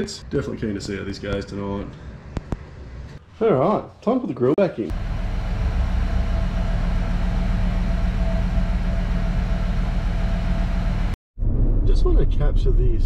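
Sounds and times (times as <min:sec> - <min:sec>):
car engine idling: 0:04.9 - 0:11.2.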